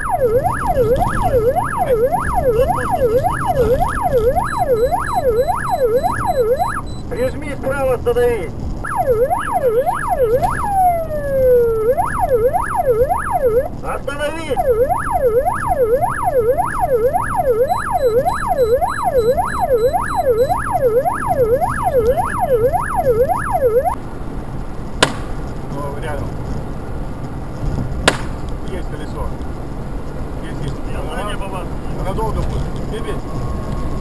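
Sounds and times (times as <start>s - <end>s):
police siren yelping: 0.0s - 7.4s, 8.8s - 24.0s
road noise: 0.0s - 34.0s
sharp crack: 25.0s - 25.7s, 28.0s - 28.8s.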